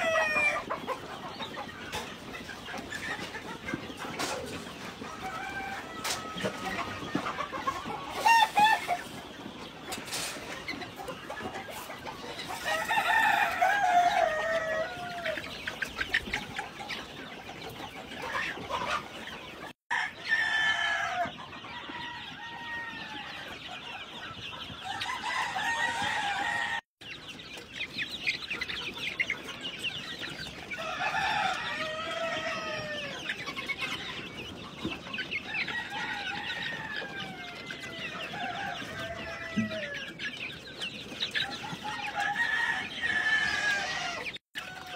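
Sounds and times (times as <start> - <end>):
chickens clucking and calling: 0.0 - 44.9
drawn-out falling chicken calls: 0.0 - 44.9.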